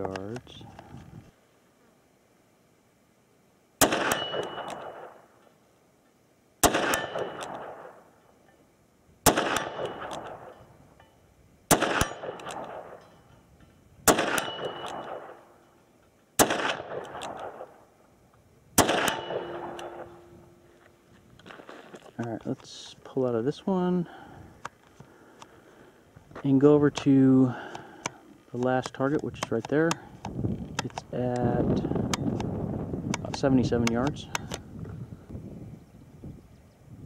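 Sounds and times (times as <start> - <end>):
revolver gunshots with echo: 3.8 - 5.3, 6.6 - 8.2, 9.2 - 10.7, 11.7 - 13.1, 14.0 - 15.6, 16.4 - 17.9, 18.8 - 20.4.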